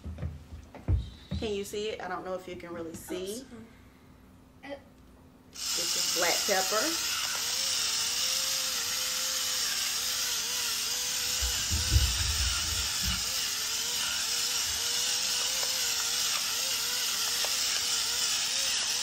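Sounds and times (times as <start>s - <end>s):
small electric motor whining: 5.6s - 19.0s
low thuds: 11.4s - 13.2s.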